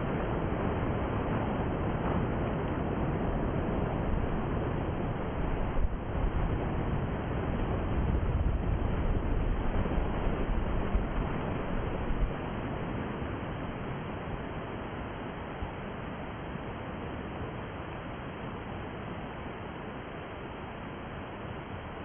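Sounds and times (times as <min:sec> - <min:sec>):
wind buffeting microphone: 0:00.0 - 0:13.1.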